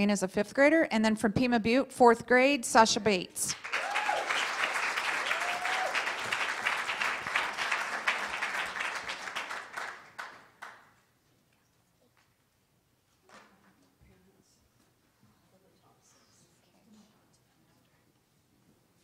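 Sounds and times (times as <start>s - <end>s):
audience applauding: 3.5s - 10.8s.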